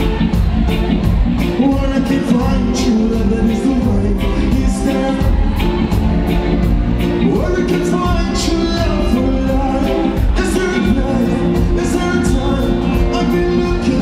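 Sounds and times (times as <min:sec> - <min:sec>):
live reggae band playing: 0:00.0 - 0:14.0
man singing: 0:01.4 - 0:06.0, 0:07.1 - 0:14.0.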